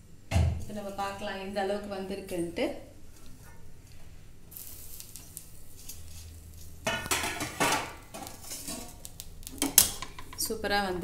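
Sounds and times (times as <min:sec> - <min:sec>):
metal utensils scraping metal pot: 0:06.9 - 0:09.0.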